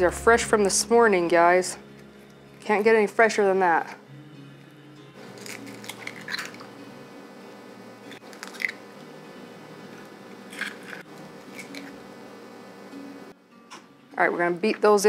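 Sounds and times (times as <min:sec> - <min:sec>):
eggshells cracking: 0:05.3 - 0:06.7, 0:08.1 - 0:08.8, 0:10.0 - 0:12.0.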